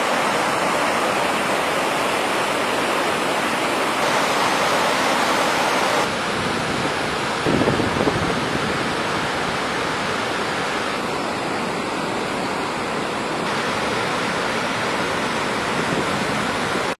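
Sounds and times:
fast-flowing floodwater rushing: 0.0s - 17.0s
wind gusts on microphone: 4.0s - 11.8s, 13.4s - 17.0s.

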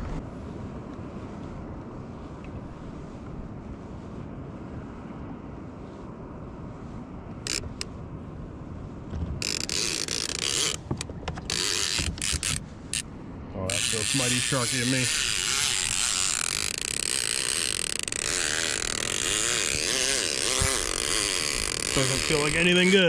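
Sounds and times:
water and wind: 0.0s - 23.0s
fishing reel buzzing: 7.5s - 7.8s, 9.4s - 10.9s, 11.5s - 13.1s, 13.7s - 23.0s.

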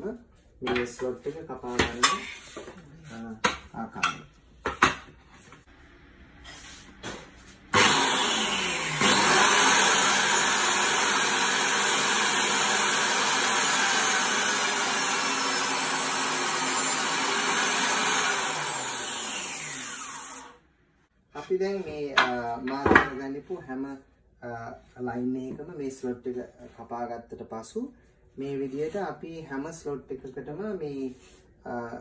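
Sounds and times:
biscuit joiner motor cutting: 7.7s - 20.6s.

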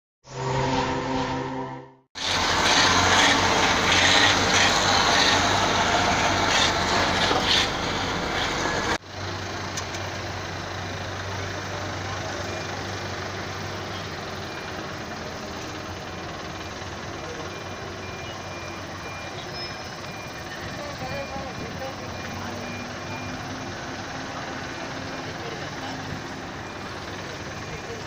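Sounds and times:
low hum: 0.2s - 3.8s
loud rushing noise: 0.2s - 9.0s
truck and car engines: 0.2s - 28.0s
intro chime: 17.4s - 23.6s.

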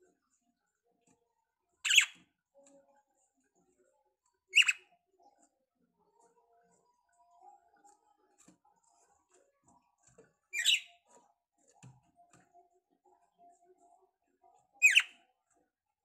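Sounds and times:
bird chirp calls: 1.8s - 2.2s, 4.6s - 4.9s, 10.5s - 11.0s, 14.8s - 15.2s.

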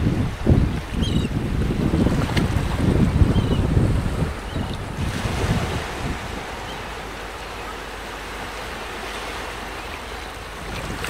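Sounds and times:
sea surf breaking over rocks: 0.0s - 11.0s
wind buffeting microphone: 0.0s - 11.0s.

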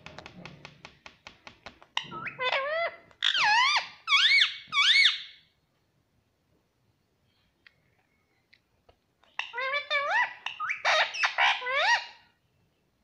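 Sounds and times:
parakeet whistled squawks: 2.2s - 5.4s.

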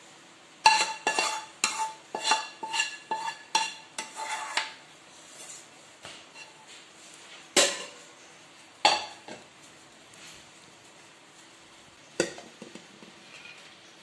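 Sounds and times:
spoon clinking against pot: 0.6s - 4.7s.

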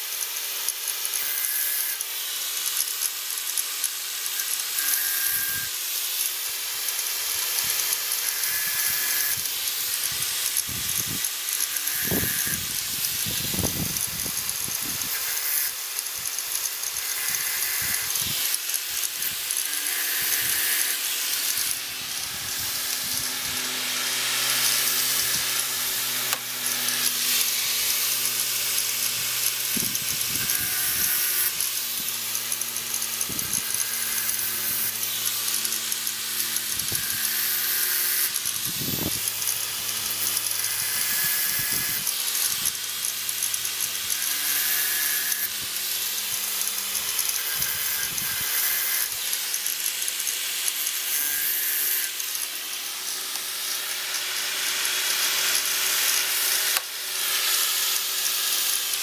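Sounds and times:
angle grinder grinding metal: 0.0s - 59.0s.

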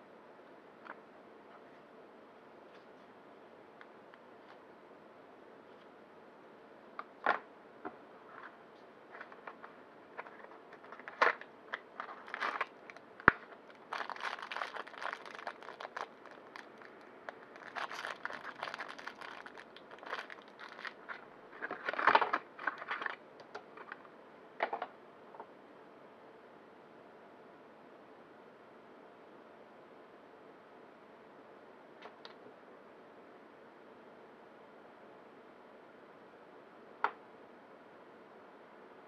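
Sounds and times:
plastic packaging crinkling: 9.1s - 24.0s.

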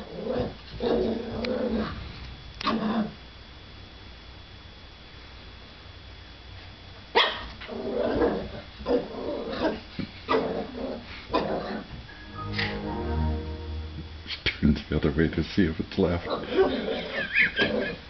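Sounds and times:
puppy barking: 7.2s - 7.5s.

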